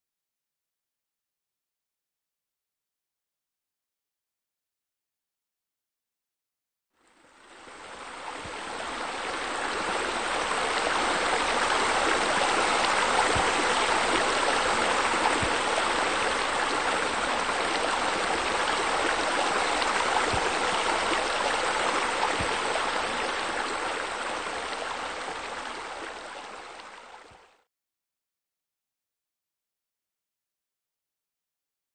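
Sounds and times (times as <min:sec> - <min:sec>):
water rushing: 0:07.3 - 0:27.4.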